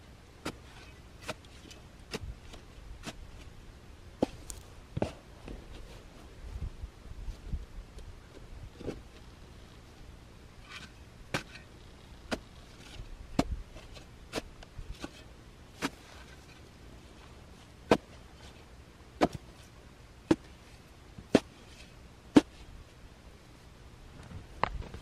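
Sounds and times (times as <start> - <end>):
spade chopping into soil: 10.8 - 11.6, 12.3 - 13.6, 19.2 - 19.5, 21.3 - 21.5.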